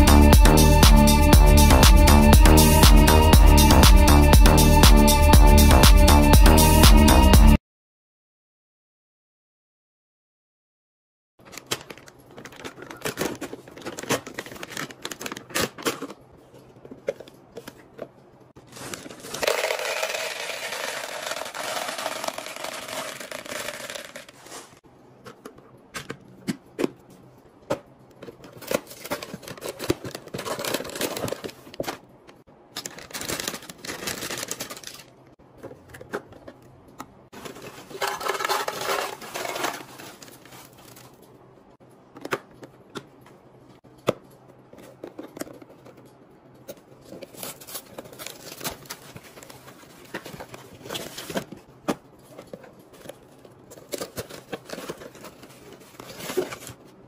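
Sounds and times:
plastic bag tearing and crinkling: 0:18.6 - 0:24.8, 0:32.8 - 0:35.1, 0:37.4 - 0:41.0
candy pouring into plastic dispenser: 0:19.0 - 0:24.4
crackers poured into jar: 0:19.1 - 0:24.4.

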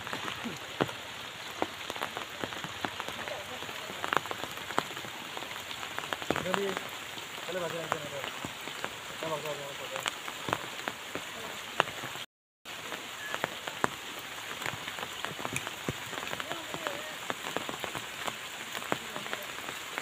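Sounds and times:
rain falling on a river: 0:00.0 - 0:20.0
raindrops ticking close by: 0:00.0 - 0:20.0.

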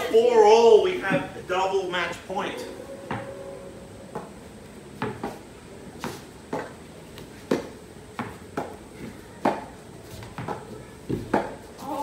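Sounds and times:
ball bouncing on wooden boards: 0:03.0 - 0:03.3, 0:05.0 - 0:05.4, 0:07.4 - 0:11.6
rackets striking tennis ball: 0:03.0 - 0:03.4, 0:05.0 - 0:11.8.

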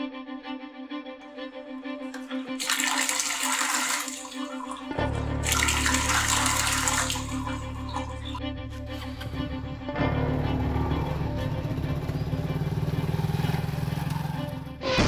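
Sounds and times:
background music: 0:00.0 - 0:15.0
water rushing from a tap: 0:02.1 - 0:08.4
low hum: 0:05.0 - 0:15.0.

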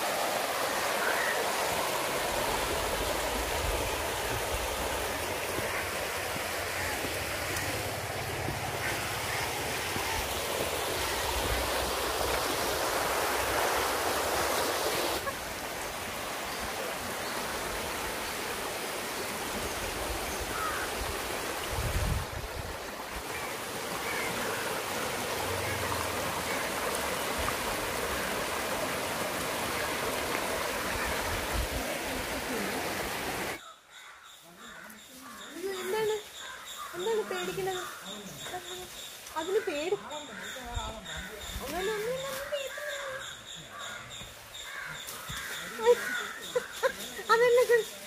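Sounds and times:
stream rushing over rocks: 0:00.0 - 0:33.6.

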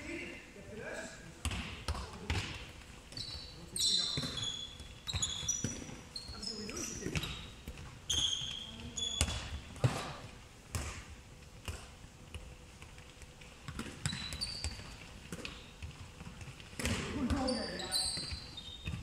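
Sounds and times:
balls thudding on wooden court: 0:01.3 - 0:19.0
sneakers squeaking on wooden floor: 0:01.5 - 0:10.2, 0:13.7 - 0:19.0.

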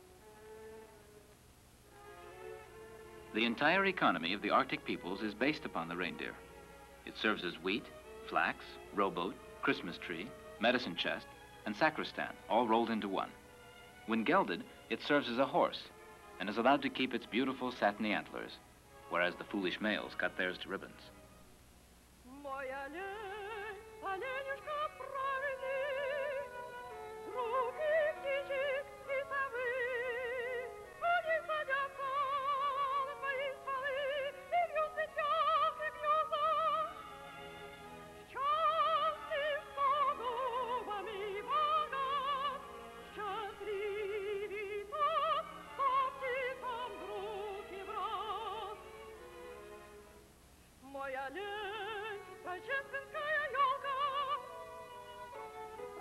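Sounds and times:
operatic singing voice: 0:22.3 - 0:37.0, 0:38.3 - 0:49.1, 0:50.8 - 0:54.6.

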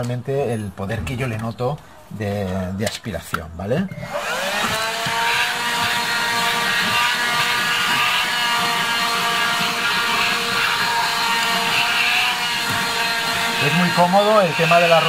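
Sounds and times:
handheld vacuum motor whining: 0:03.9 - 0:15.0.

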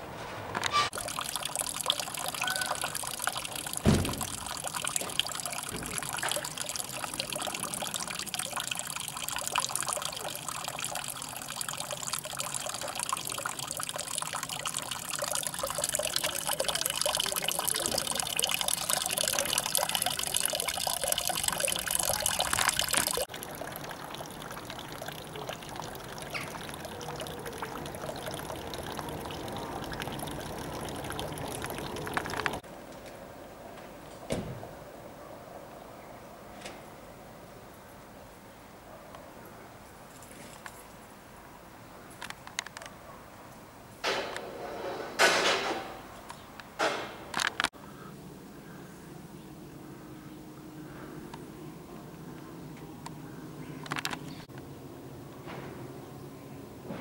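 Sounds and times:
fountain water splashing: 0:00.9 - 0:32.6
low thump: 0:03.8 - 0:04.4.

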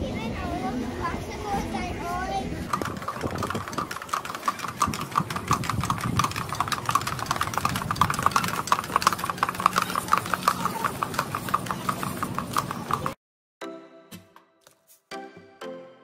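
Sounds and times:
horse hooves clopping on asphalt: 0:02.7 - 0:13.2
vehicle engine running: 0:02.7 - 0:13.2.

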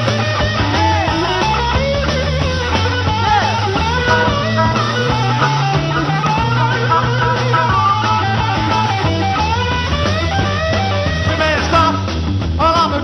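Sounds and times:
rock band playing: 0:00.0 - 0:13.0
harmonica with bending notes: 0:01.2 - 0:11.2.

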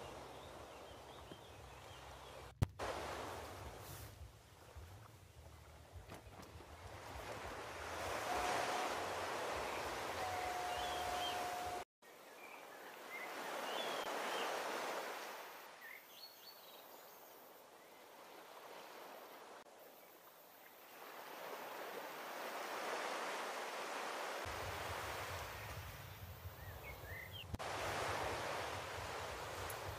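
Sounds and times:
surf washing ashore: 0:02.7 - 0:05.1, 0:06.6 - 0:11.8, 0:13.0 - 0:15.8, 0:20.3 - 0:26.7, 0:27.6 - 0:29.9.

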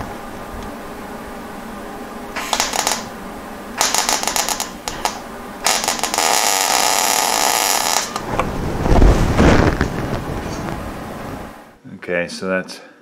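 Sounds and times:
welding arc crackling: 0:02.3 - 0:11.8.

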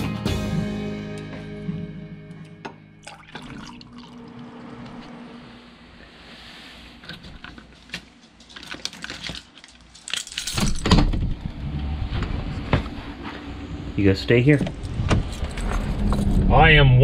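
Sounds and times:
coffee pouring into mug: 0:03.0 - 0:04.7
keys jangling: 0:08.2 - 0:11.0
door opening: 0:10.4 - 0:12.9, 0:14.6 - 0:16.5.

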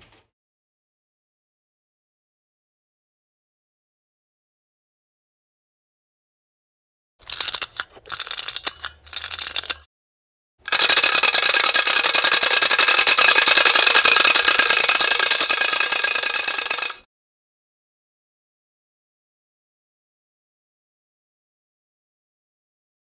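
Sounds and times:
loud rattling: 0:07.2 - 0:09.9, 0:10.7 - 0:17.0.

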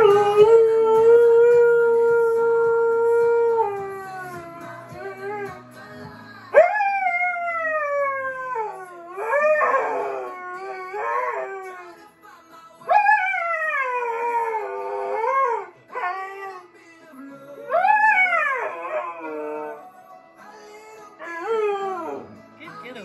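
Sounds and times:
pop song: 0:00.0 - 0:23.0
dog howling: 0:06.6 - 0:12.0, 0:12.9 - 0:16.7, 0:17.6 - 0:19.9, 0:21.2 - 0:22.3.

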